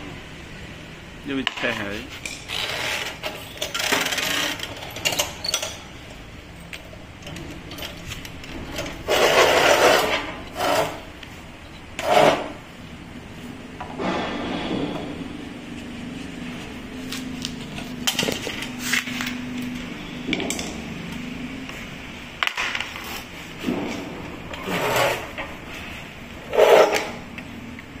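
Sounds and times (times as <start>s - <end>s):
metal tools clinking and scraping: 1.6s - 11.0s.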